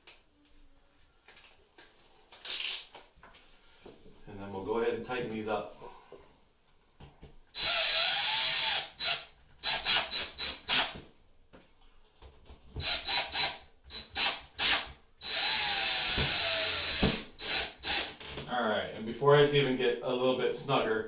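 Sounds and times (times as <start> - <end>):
cordless drill driving screws: 7.6 - 11.0, 12.8 - 18.2.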